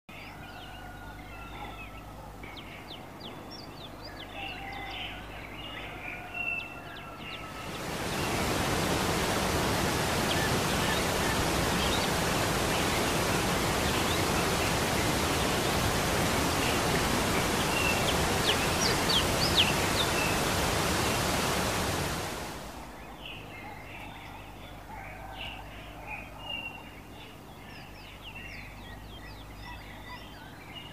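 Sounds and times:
birds chirping: 0.2s - 30.9s
water rushing through stone basin: 7.6s - 22.8s.

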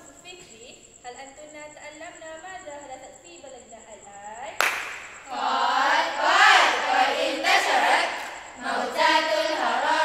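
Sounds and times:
girls chanting in unison: 5.2s - 10.0s.

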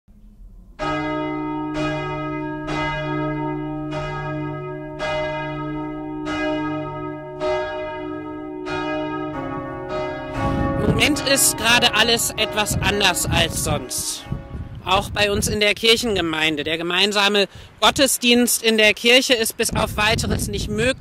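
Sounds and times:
church bell ringing: 0.7s - 15.5s.

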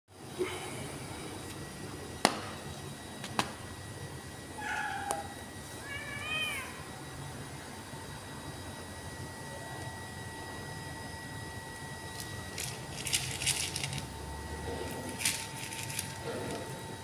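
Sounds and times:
kitten mewing: 4.6s - 6.8s.

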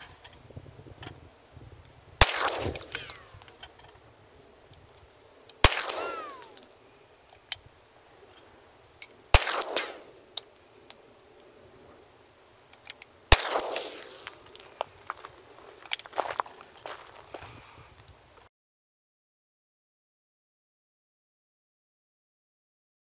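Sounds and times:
pistol shots: 2.2s - 3.5s, 5.6s - 6.7s, 9.3s - 10.2s, 13.3s - 14.6s.

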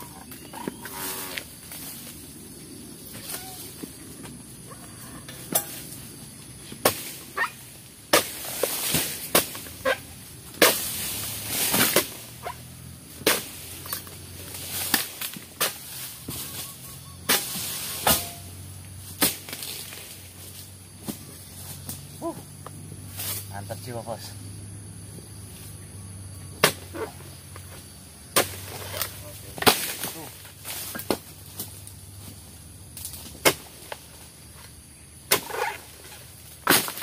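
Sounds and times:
rustling of fronds: 0.0s - 24.3s, 27.0s - 37.0s
pole chopping palm fronds: 5.4s - 6.1s, 6.7s - 22.4s, 23.1s - 23.6s, 26.5s - 27.2s, 28.3s - 32.4s, 33.0s - 34.4s, 35.2s - 37.0s.

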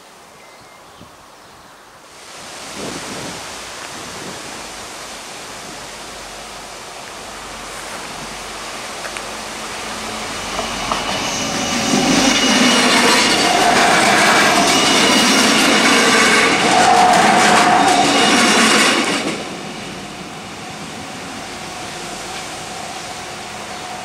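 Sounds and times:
train engines and wheels rumbling: 0.0s - 24.0s
high wheel squeal: 9.4s - 24.0s.

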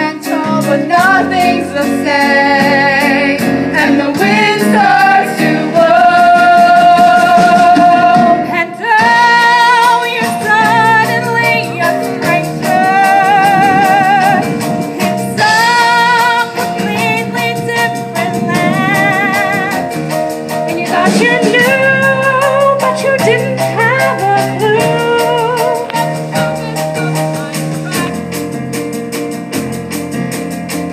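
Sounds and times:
live band with drum kit: 0.0s - 30.9s
group of young voices singing: 1.0s - 10.4s, 15.3s - 16.8s.

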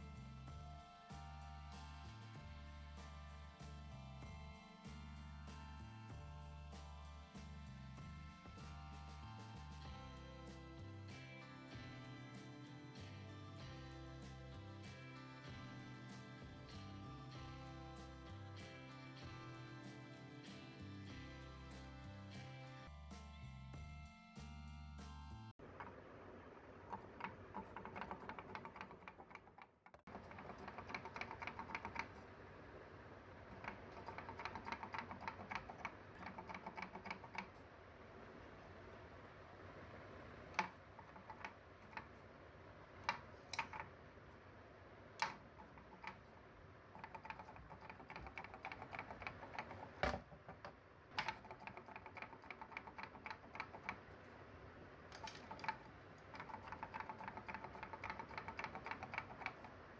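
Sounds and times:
wooden toy legs clacking: 26.8s - 32.3s, 33.5s - 37.6s, 40.6s - 42.2s, 43.0s - 44.0s, 45.2s - 54.2s, 55.0s - 59.9s.

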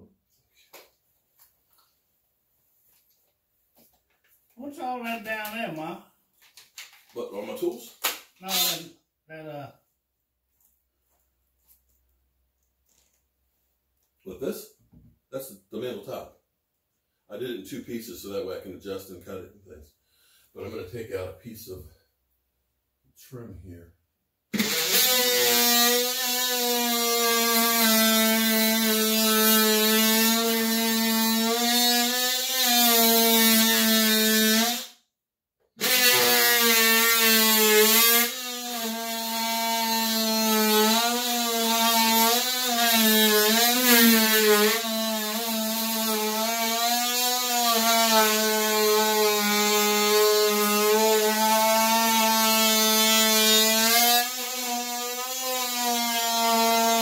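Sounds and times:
power tool buzzing: 7.4s - 9.0s, 24.5s - 35.0s, 35.8s - 57.0s.

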